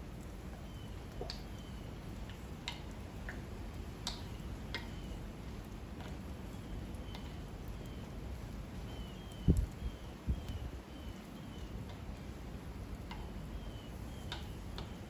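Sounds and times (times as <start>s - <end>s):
wood fire crackling: 0.0s - 15.0s.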